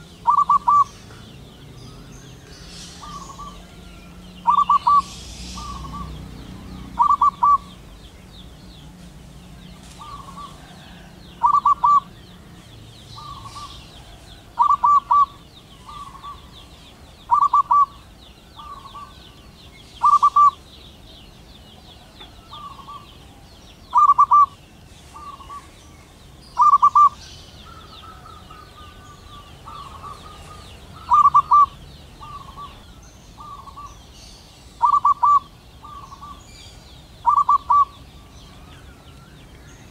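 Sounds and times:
dove cooing: 0.0s - 8.0s, 9.8s - 12.5s, 13.2s - 16.6s, 17.2s - 19.3s, 20.0s - 20.7s, 21.8s - 25.8s, 26.6s - 34.0s, 34.8s - 36.4s, 37.2s - 38.2s.

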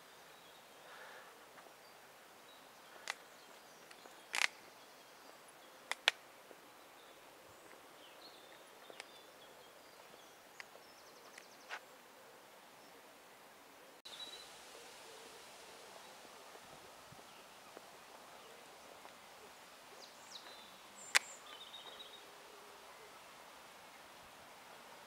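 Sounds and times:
faint high chirps: 14.1s - 25.0s.

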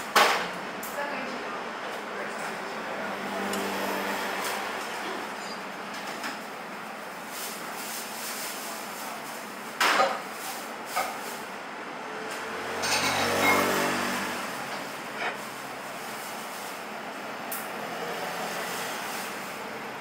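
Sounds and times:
steady traffic noise: 0.0s - 20.0s
motor vehicle passing: 2.2s - 5.4s, 12.0s - 16.8s, 17.6s - 19.6s.

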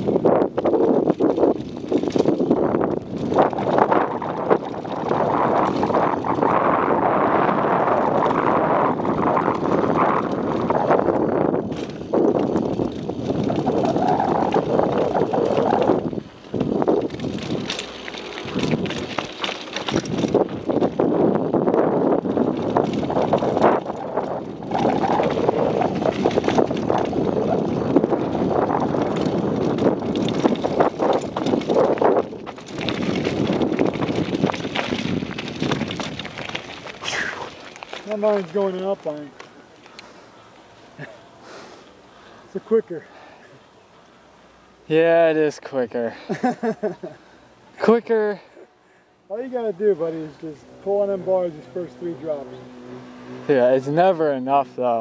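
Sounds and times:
wind rushing over microphone: 0.0s - 39.4s
bike rattling and knocking: 0.0s - 40.0s
tyres crunching on gravel: 0.0s - 48.6s, 49.3s - 55.0s.

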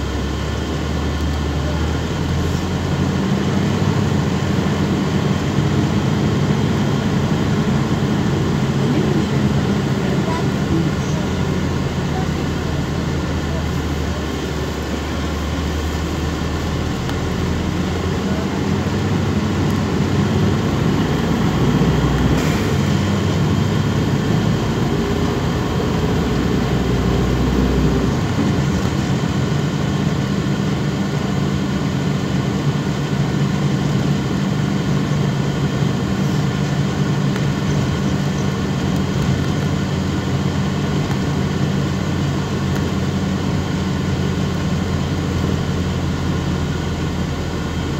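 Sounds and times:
bus diesel engine: 0.0s - 47.9s
road rumble: 0.0s - 47.9s.

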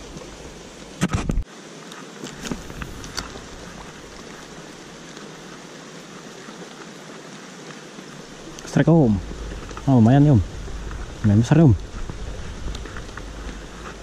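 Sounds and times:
stream water running: 0.0s - 14.0s.

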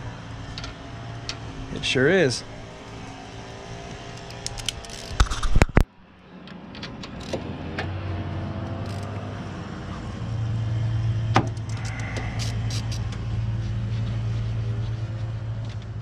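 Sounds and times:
low hum: 0.0s - 6.4s, 7.1s - 16.0s
ratchet clicking on a bolt: 4.2s - 5.6s, 7.0s - 7.4s, 8.8s - 9.2s, 11.5s - 13.0s.

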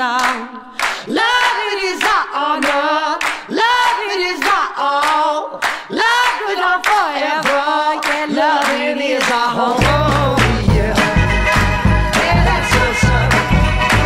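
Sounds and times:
handclaps: 0.1s - 14.0s.

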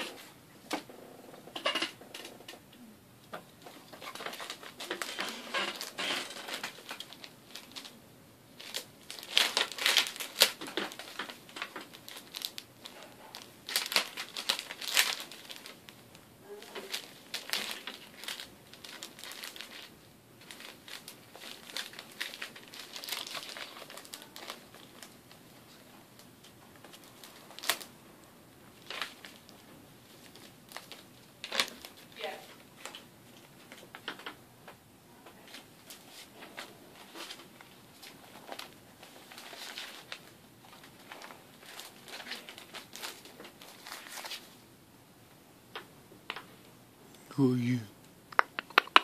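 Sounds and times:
paper rustling and crinkling: 3.6s - 8.0s, 8.6s - 28.0s, 28.7s - 34.4s, 35.4s - 44.6s.

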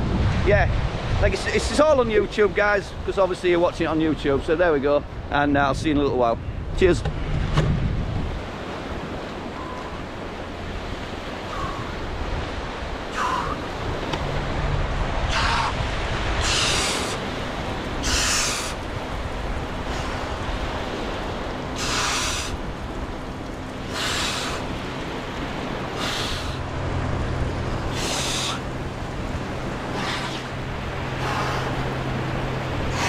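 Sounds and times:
surf: 0.0s - 33.0s
man breathing hard: 15.3s - 17.3s, 21.8s - 22.6s, 23.9s - 24.7s, 25.9s - 26.6s, 27.9s - 28.7s.

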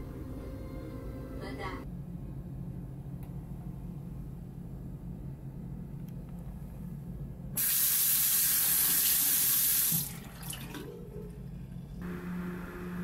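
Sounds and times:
tap water running into washbasin: 7.6s - 11.4s.

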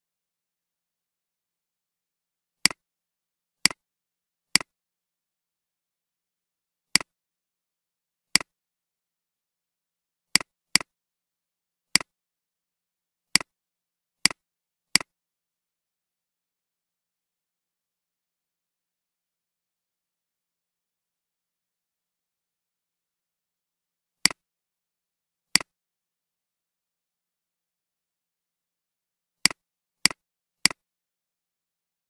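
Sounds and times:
computer mouse clicks: 4.5s - 4.7s, 6.9s - 7.1s, 10.4s - 10.9s, 11.9s - 12.1s, 13.3s - 13.5s, 14.2s - 15.1s, 25.5s - 25.7s, 29.4s - 30.8s.

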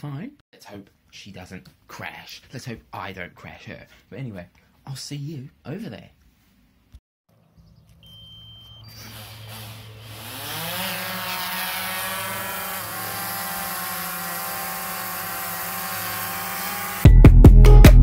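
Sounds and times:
brief beep: 8.0s - 9.1s
drone propellers whining: 8.7s - 13.3s.

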